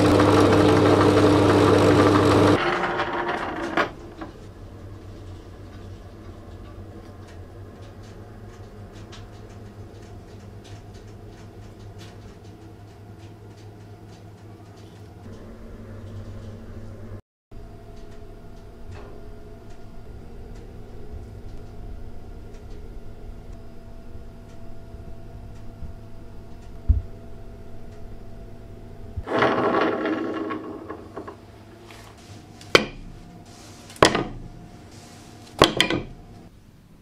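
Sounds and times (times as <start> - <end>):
steady low hum: 3.9 - 37.0
foam blocks scraping and rustling: 31.6 - 35.6.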